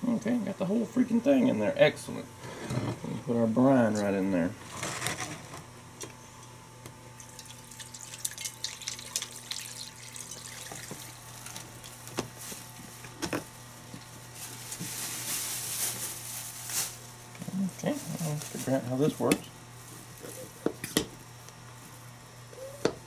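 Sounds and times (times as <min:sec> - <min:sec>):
liquid pouring into container: 0:07.2 - 0:11.2.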